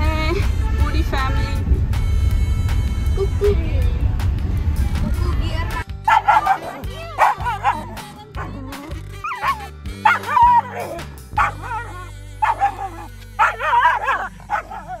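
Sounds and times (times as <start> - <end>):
dog whining and yipping: 6.1 - 15.0.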